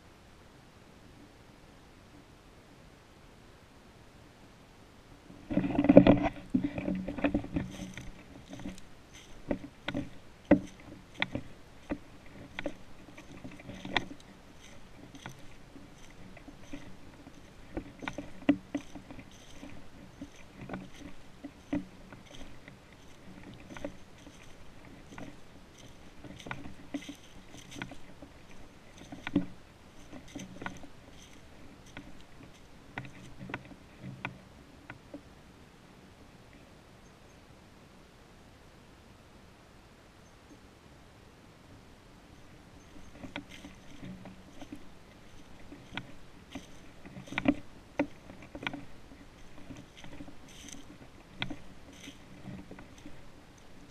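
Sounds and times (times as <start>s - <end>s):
leaves rustling: 5.2s - 36.7s, 41.6s - 53.9s
footsteps crunching through dry leaves: 7.6s - 33.4s, 42.8s - 53.9s.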